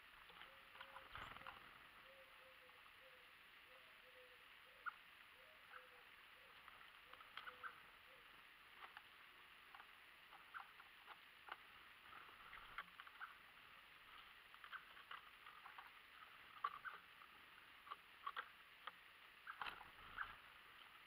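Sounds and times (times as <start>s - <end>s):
low steady hiss: 0.0s - 21.0s
small songbirds chirping: 0.0s - 21.0s.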